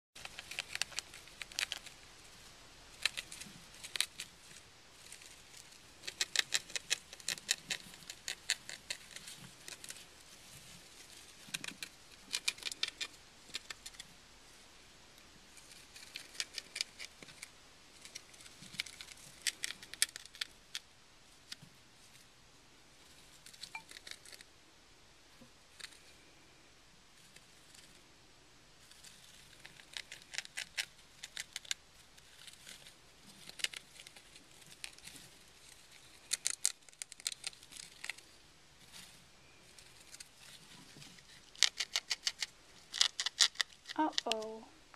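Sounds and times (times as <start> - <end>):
gerbils gnawing cardboard: 0.2 - 2.2, 2.9 - 14.1, 15.6 - 20.9, 29.0 - 39.0, 39.6 - 44.4.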